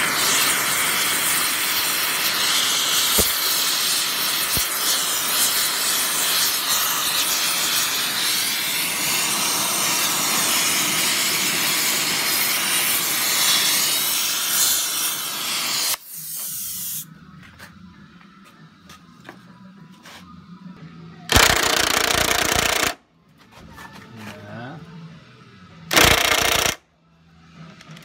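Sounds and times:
torch flame hissing: 0.0s - 17.1s.

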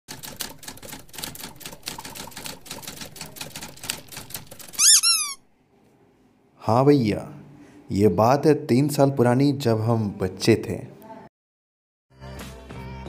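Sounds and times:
high sliding chirps: 4.8s - 5.4s.

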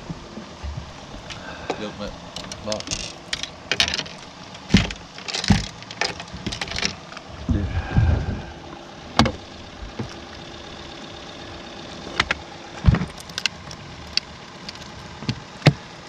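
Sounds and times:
gear knocking on boat deck: 2.4s - 8.2s.

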